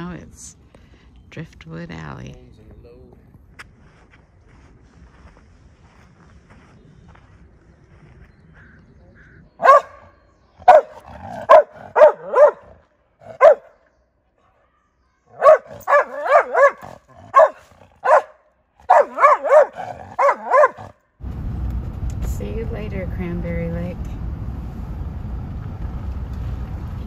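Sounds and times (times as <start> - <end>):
dog barking sharply: 9.6 - 10.0, 10.7 - 13.7, 15.4 - 20.9.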